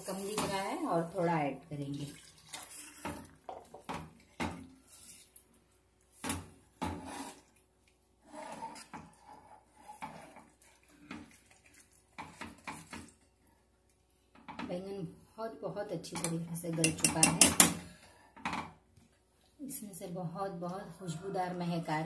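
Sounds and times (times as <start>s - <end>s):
spatula knocking and scraping pan: 6.2s - 7.5s, 8.4s - 11.4s, 16.2s - 17.8s.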